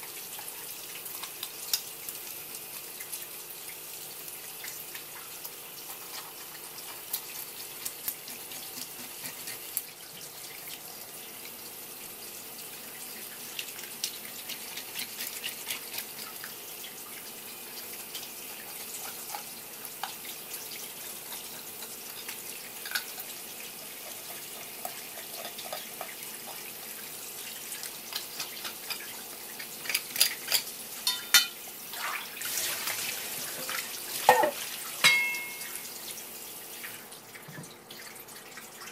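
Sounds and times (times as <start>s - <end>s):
tap water running from a hose: 0.0s - 38.9s
knife scraping fish: 7.8s - 9.8s, 14.4s - 16.2s
metal bowl knocking and clinking: 31.1s - 31.6s, 34.3s - 35.8s.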